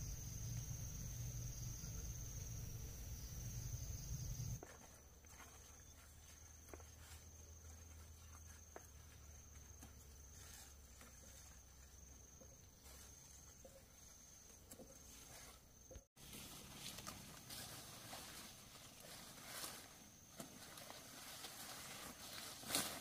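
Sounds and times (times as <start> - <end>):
high-pitched insect tone: 0.0 - 4.6
leaves rustling and clicking: 4.4 - 23.0.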